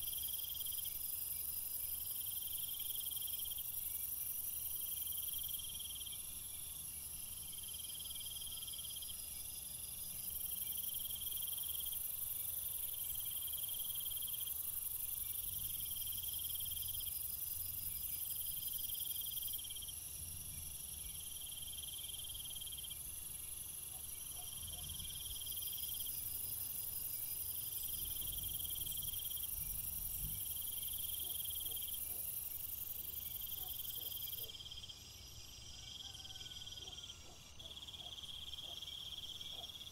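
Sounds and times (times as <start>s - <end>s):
insects chirping: 0.0s - 39.9s.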